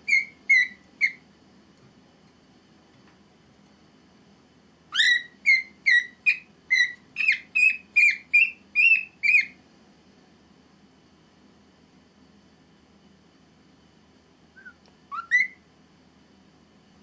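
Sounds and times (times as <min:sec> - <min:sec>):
cockatiel whistled chirps: 0:00.0 - 0:01.2, 0:04.9 - 0:09.6, 0:14.6 - 0:15.6.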